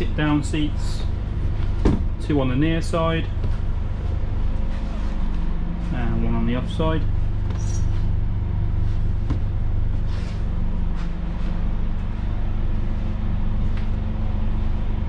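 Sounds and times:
bus engine idling: 0.0s - 15.0s.

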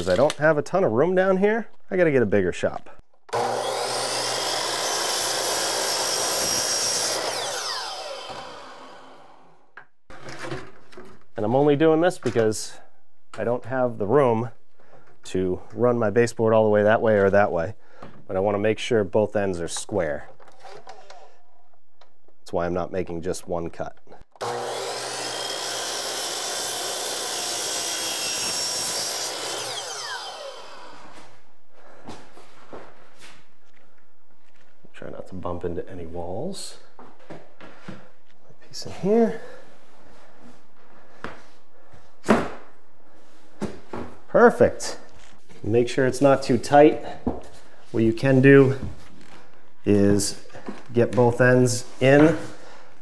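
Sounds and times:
miter saw cutting wood: 3.3s - 9.6s, 24.4s - 31.3s
saw motor winding down: 3.3s - 9.6s, 24.4s - 31.2s.

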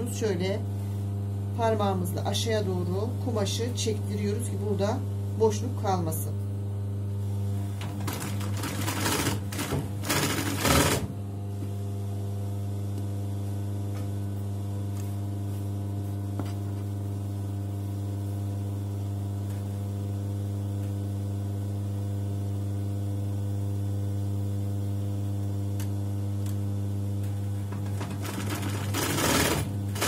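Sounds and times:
sewing machine motor hum: 7.2s - 11.2s, 26.4s - 30.0s.

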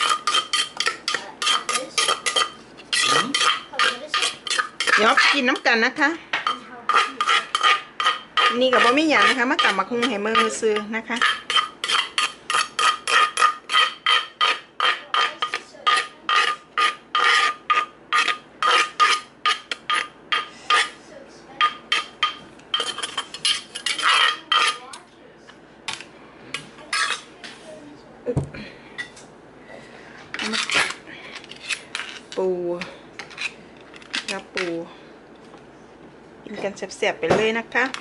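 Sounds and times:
metal spoon scraping a mortar: 0.0s - 21.0s, 21.6s - 25.0s, 26.8s - 27.6s, 30.4s - 32.4s, 33.2s - 34.5s.

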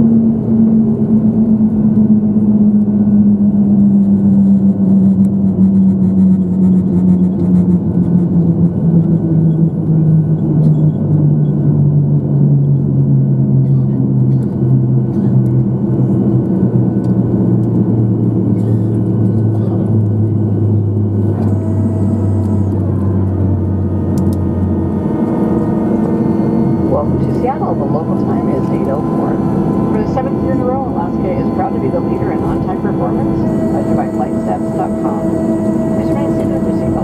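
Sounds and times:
jet engines droning down: 0.0s - 37.0s
runway rumble: 0.0s - 37.0s
faint high whine: 21.2s - 37.0s.

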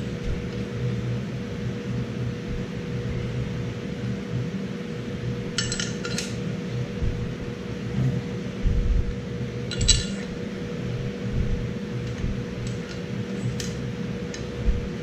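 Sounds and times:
low background hum: 0.0s - 15.0s
metal bolts clinking: 5.6s - 6.4s, 9.7s - 10.4s.

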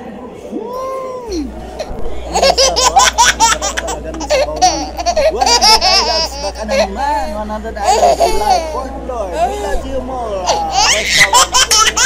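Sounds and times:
high-pitched laughter: 10.5s - 12.0s.

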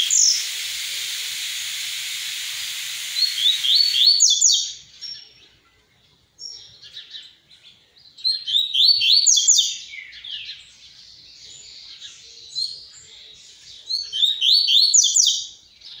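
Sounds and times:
bird singing high notes: 0.0s - 4.7s
soft bird twittering: 0.0s - 5.7s.

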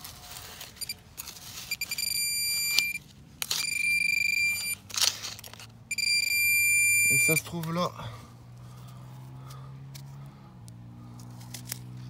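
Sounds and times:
soil scraping against probe: 0.0s - 5.8s
pinpointer electronic alarm tone: 1.7s - 4.8s, 5.9s - 7.5s.

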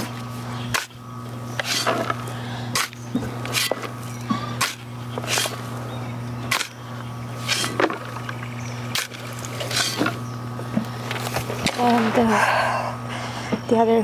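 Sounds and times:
shovel scraping dry soil: 0.0s - 5.7s, 6.5s - 6.8s, 7.4s - 8.0s, 8.9s - 10.2s
steady low hum: 0.0s - 14.0s.

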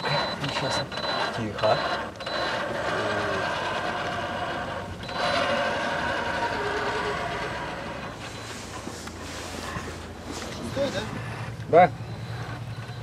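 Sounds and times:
electric motor whine: 1.2s - 8.5s.

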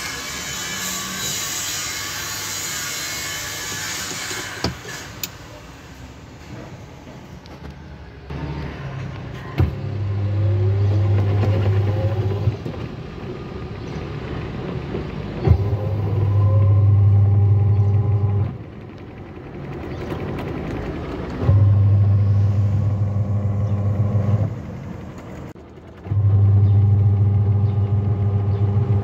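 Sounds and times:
quiet whirring: 9.6s - 29.0s
washing machine motor humming: 9.6s - 29.0s.

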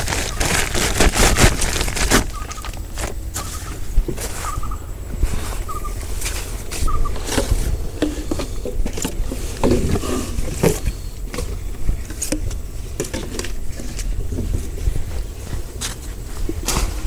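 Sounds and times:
plastic bag rustling: 0.0s - 4.6s
plastic jars knocking and scraping: 7.1s - 14.7s.

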